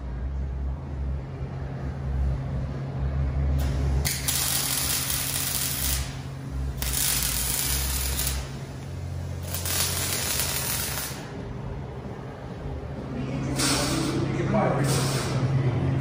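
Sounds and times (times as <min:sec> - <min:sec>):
steady low hum: 0:00.0 - 0:16.0
welding arc crackling and hissing: 0:03.6 - 0:11.4.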